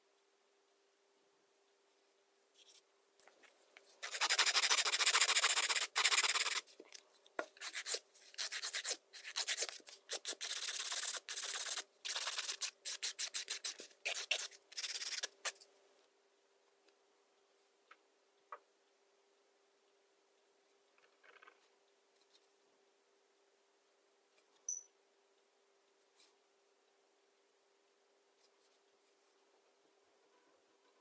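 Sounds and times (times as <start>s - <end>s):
nail file scraping nail: 4.0s - 6.7s, 7.5s - 15.6s.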